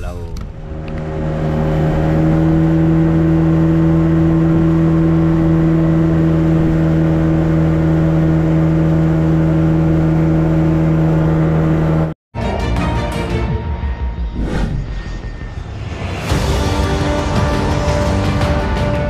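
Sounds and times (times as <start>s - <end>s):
outboard motor running: 0.5s - 12.2s.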